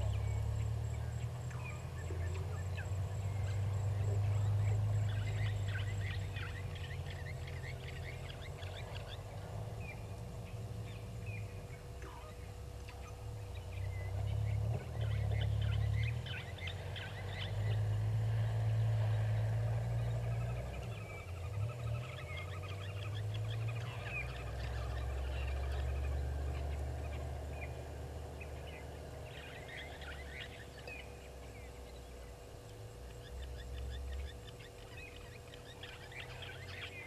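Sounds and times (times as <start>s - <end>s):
faint steady hum: 0.0s - 37.0s.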